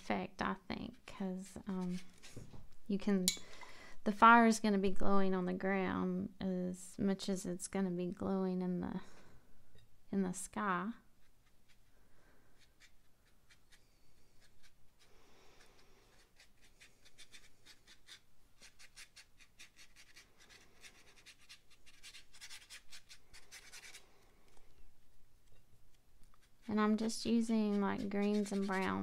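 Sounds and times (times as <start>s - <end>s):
paintbrush scratching on paper: 0.8s - 2.5s, 11.1s - 24.1s, 26.2s - 29.0s.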